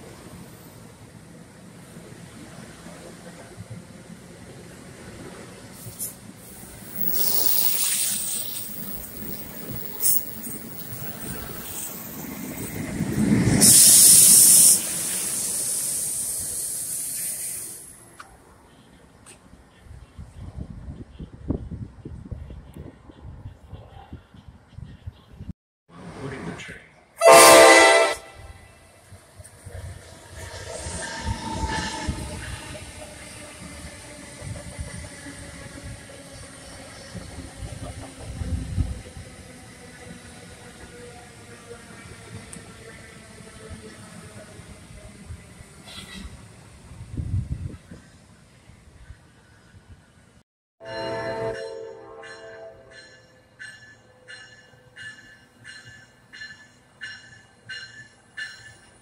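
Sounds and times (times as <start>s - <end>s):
train wheel and rail rumble: 0.0s - 59.0s
loud locomotive hiss: 5.6s - 10.6s, 13.2s - 18.1s.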